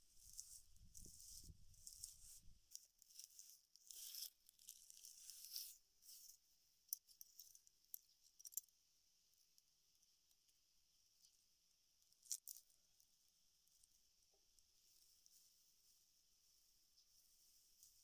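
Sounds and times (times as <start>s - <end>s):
dry palm fiber rustling: 0.0s - 5.8s.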